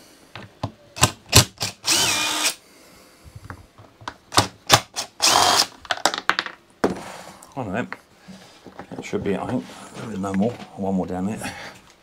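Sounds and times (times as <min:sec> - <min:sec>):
impact driver motor whine: 0:01.7 - 0:02.6.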